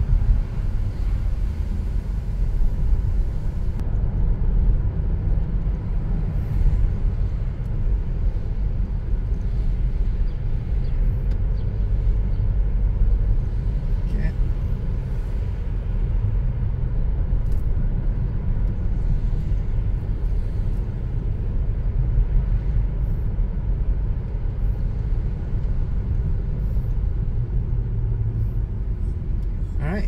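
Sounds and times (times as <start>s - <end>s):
car interior engine rumble: 0.0s - 30.0s
tyre road noise: 0.0s - 30.0s.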